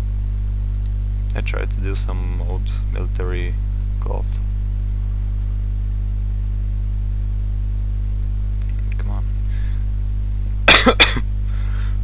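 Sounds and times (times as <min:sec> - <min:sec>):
low electrical hum: 0:00.0 - 0:12.0
man coughing: 0:10.6 - 0:12.0.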